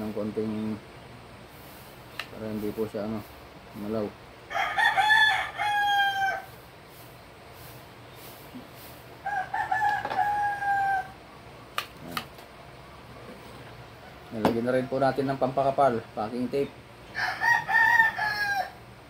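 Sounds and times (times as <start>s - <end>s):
rooster crowing: 4.5s - 6.6s, 9.2s - 11.2s, 13.8s - 15.3s, 17.1s - 19.0s.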